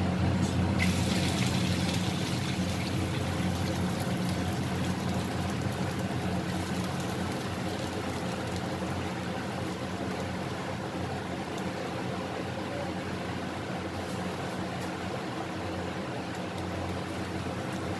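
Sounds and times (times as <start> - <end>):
gas burner roaring: 0.0 - 17.9
vegetables sizzling in a wok: 0.8 - 11.6.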